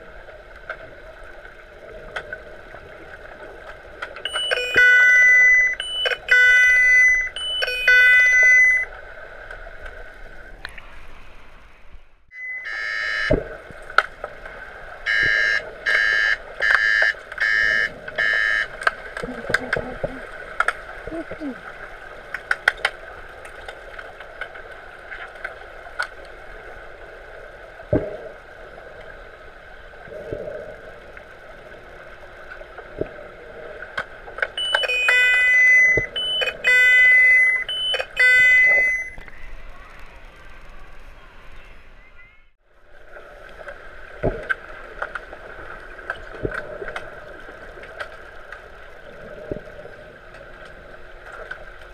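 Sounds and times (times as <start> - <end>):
underwater buzzer blasts: 4.3 - 8.9, 12.4 - 13.4, 15.1 - 18.8, 34.6 - 39.2.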